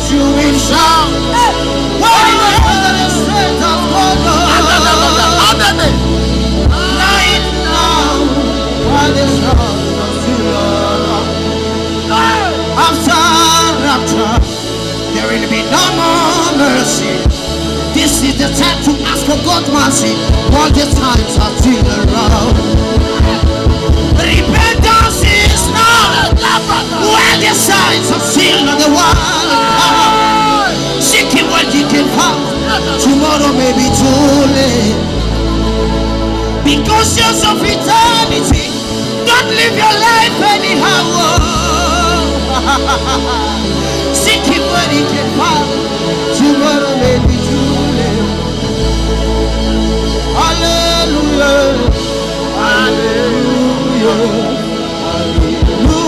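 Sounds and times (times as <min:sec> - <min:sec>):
church worship music with voices: 0:00.0 - 0:56.0
low drum beat: 0:20.0 - 0:26.6.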